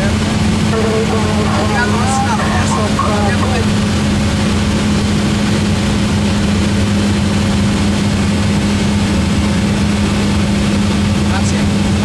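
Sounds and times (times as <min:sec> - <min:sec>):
airplane engine hum in cabin: 0:00.7 - 0:06.4.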